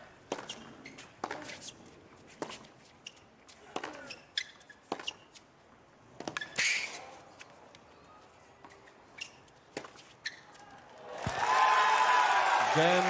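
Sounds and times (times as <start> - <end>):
sneakers squeaking: 0.0 - 5.5, 6.1 - 11.4
racket hitting tennis ball: 0.2 - 2.7, 3.6 - 5.4, 6.2 - 7.1, 9.2 - 10.2.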